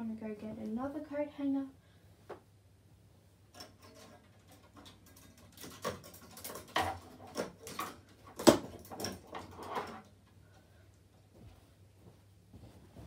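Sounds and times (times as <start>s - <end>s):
coat hanger clicking and knocking: 3.5s - 10.2s.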